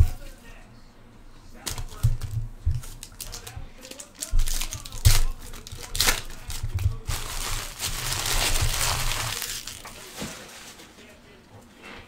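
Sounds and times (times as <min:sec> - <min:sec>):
wrappers crinkling and tearing: 0:01.6 - 0:10.9.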